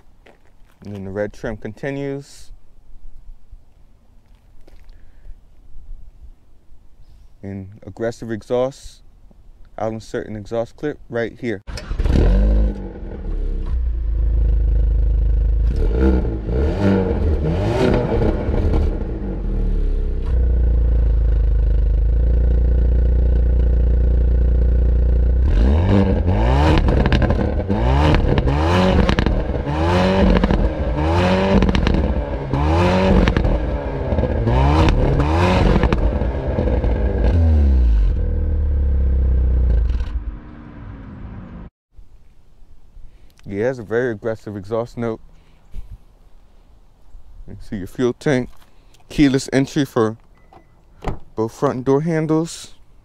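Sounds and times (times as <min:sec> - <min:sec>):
exhaust cracks: 0:11.7 - 0:41.6
car engine idling and revving: 0:11.7 - 0:41.7.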